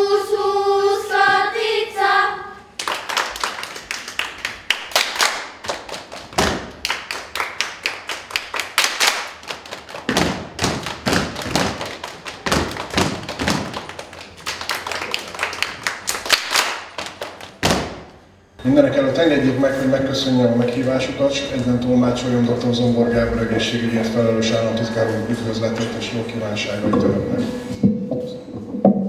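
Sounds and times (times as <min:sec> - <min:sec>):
children clapping hands: 0:02.8 - 0:18.0
feet stamping: 0:10.0 - 0:13.9, 0:17.6 - 0:18.2.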